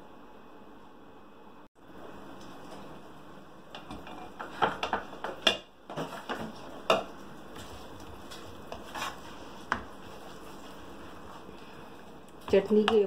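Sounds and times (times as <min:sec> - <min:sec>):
spatula scraping in a pan: 0:07.5 - 0:11.5.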